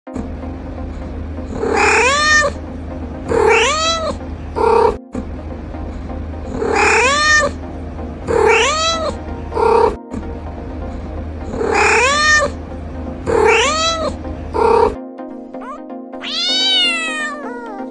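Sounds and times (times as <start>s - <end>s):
cat meowing: 1.6s - 2.6s, 3.3s - 4.2s, 6.6s - 7.6s, 8.3s - 10.0s, 11.6s - 12.6s, 13.3s - 15.0s, 15.6s - 17.9s.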